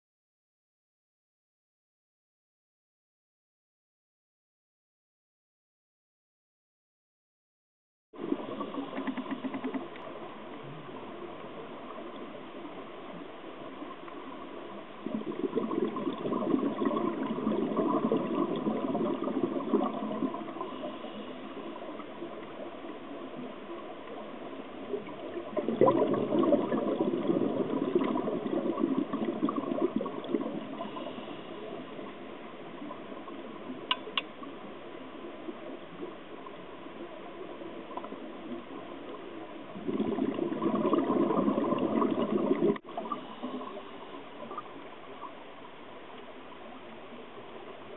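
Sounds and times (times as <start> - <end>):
underwater exhaled bubbles: 8.2 - 45.5.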